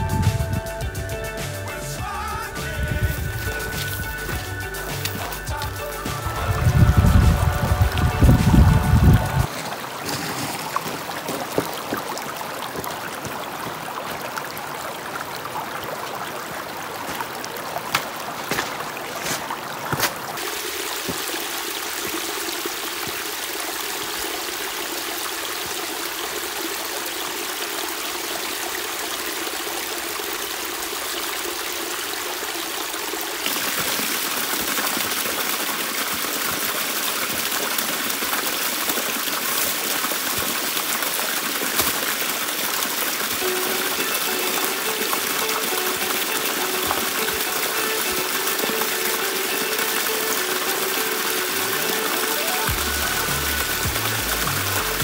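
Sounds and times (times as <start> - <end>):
stream trickling over rocks: 0.0 - 55.0
stones clattering underfoot: 9.5 - 13.4, 17.0 - 20.4, 41.6 - 42.2, 43.3 - 49.7.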